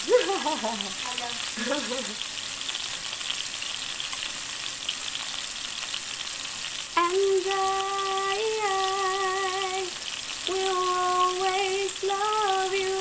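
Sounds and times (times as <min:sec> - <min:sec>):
person speaking: 0:00.0 - 0:02.2
fish sizzling in hot oil: 0:00.0 - 0:13.0.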